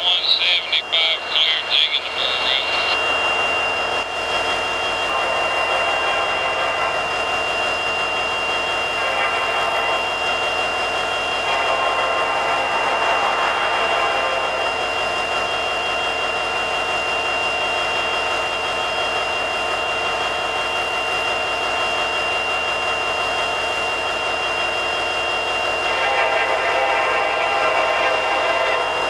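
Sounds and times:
thin high whine: 0.0s - 12.3s.

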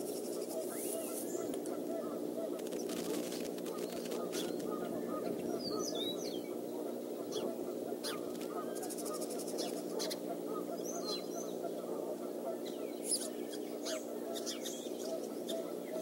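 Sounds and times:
high twittering birdsong: 0.0s - 16.0s
songbirds chirping: 0.0s - 16.0s
steady low hum: 0.0s - 16.0s.

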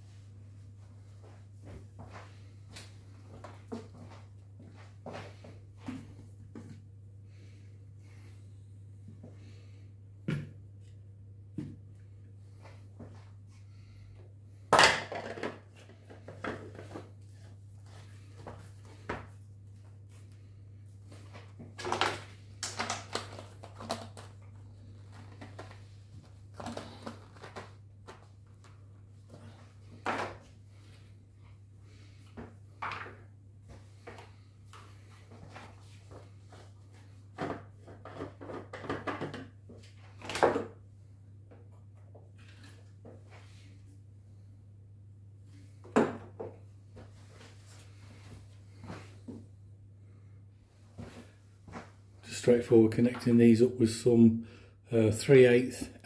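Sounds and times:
plastic parts knocking and clattering: 14.7s - 17.0s, 21.8s - 24.3s, 37.4s - 39.6s
plastic packaging rustling: 21.8s - 28.2s.

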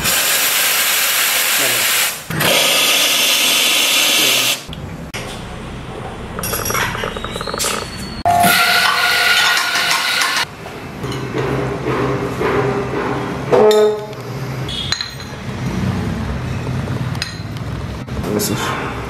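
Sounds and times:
electric coffee grinder running: 2.4s - 4.6s.

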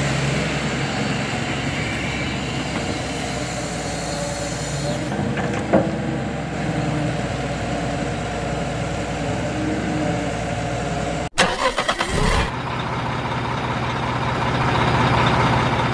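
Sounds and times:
engine idling: 10.4s - 15.9s.

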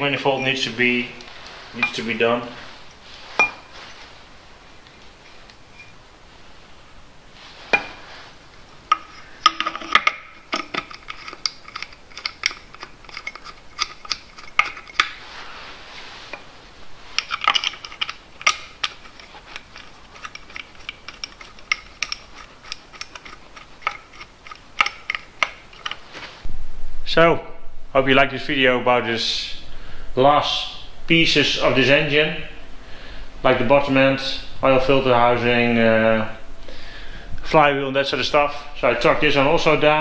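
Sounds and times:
small metal clinks and taps: 8.9s - 15.1s, 17.2s - 26.0s.

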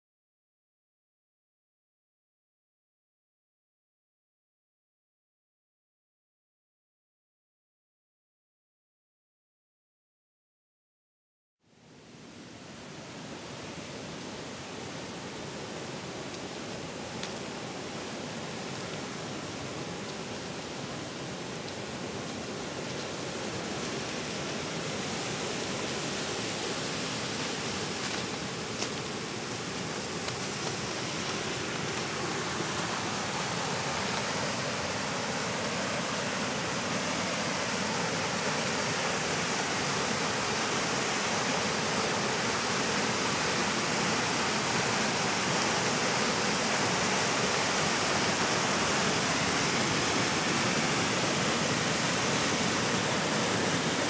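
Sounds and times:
river rushing over rocks: 12.0s - 54.0s.

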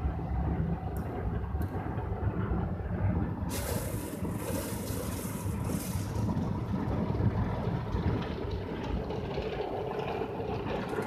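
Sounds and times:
hissing swish of bristles and spray: 3.5s - 6.3s
car-wash brushes rumbling: 3.5s - 11.0s.

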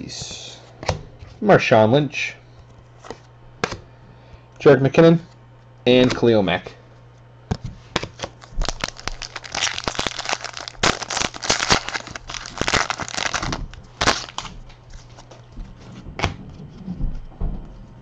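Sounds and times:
foil wrapper tearing and crinkling: 8.0s - 15.4s.

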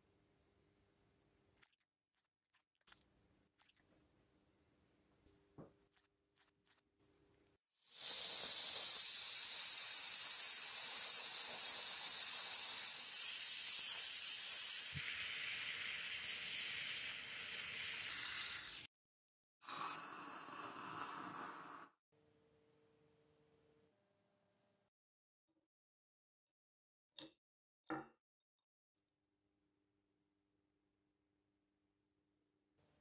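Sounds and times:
gas torch flame hissing: 7.8s - 18.9s
hot metal sizzling in water: 7.8s - 18.9s.

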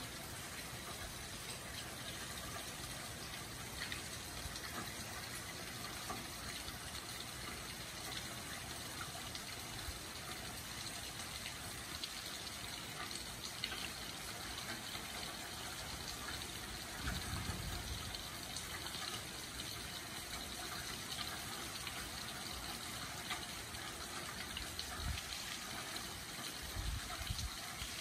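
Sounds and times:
steady rain hiss: 0.0s - 28.0s
single raindrops ticking: 10.2s - 27.2s.

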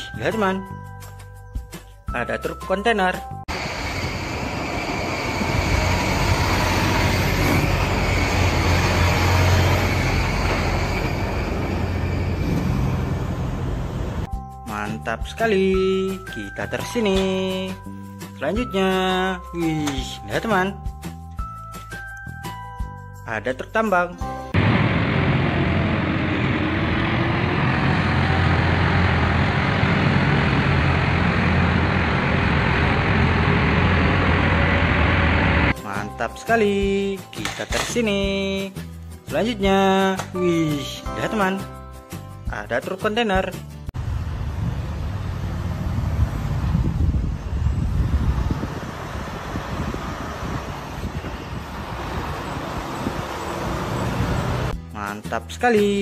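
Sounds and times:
diesel truck engine hum: 3.5s - 14.3s, 24.6s - 35.7s, 44.0s - 54.8s
tyre and road noise: 3.5s - 14.3s, 24.6s - 35.7s, 44.0s - 54.8s.

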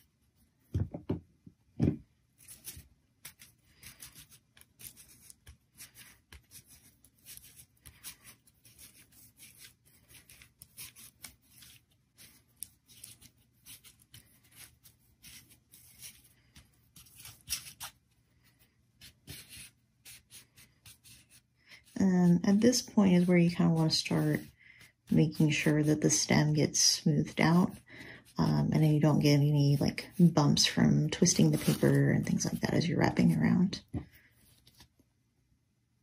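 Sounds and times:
dull thumps: 0.7s - 2.1s
crepe paper crinkling and rustling: 2.4s - 18.0s, 31.2s - 32.6s.

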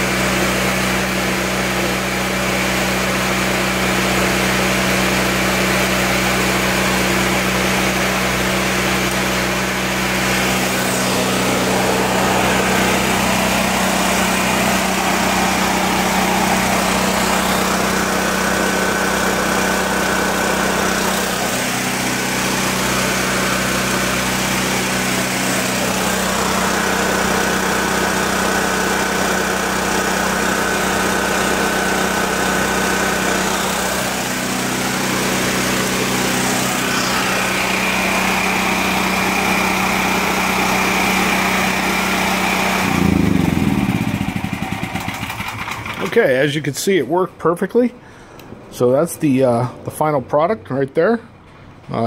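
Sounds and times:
generator engine running: 0.0s - 50.4s.

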